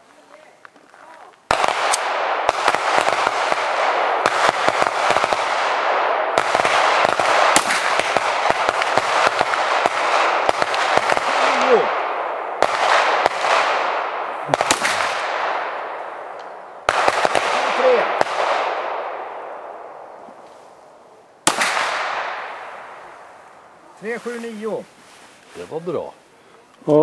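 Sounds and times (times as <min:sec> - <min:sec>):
pistol shots with echoes: 0:01.5 - 0:20.2, 0:21.4 - 0:23.1.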